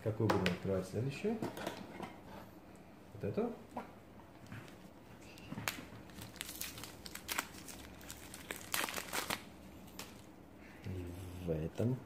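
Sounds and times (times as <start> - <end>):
plastic wrapping crinkling: 5.4 - 10.3.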